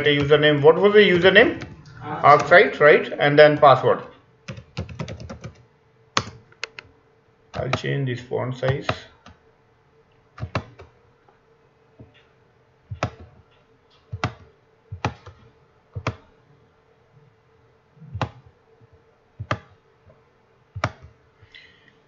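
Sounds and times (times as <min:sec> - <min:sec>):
faint steady hum: 0:00.0 - 0:22.0
computer mouse clicking: 0:06.2 - 0:06.9, 0:10.4 - 0:10.9, 0:12.9 - 0:15.4, 0:16.0 - 0:16.3, 0:18.2 - 0:18.5, 0:19.4 - 0:19.8, 0:20.8 - 0:21.1.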